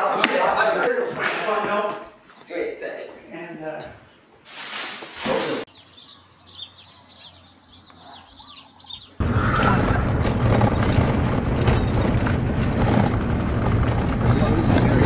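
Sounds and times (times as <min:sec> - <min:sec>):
small birds chirping: 0:05.7 - 0:12.3
loud rumbling noise: 0:09.2 - 0:15.0.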